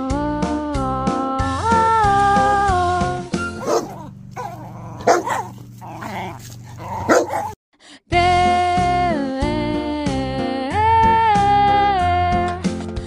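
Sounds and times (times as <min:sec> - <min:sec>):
background music: 0:01.4 - 0:07.4
dog barking: 0:03.6 - 0:07.6.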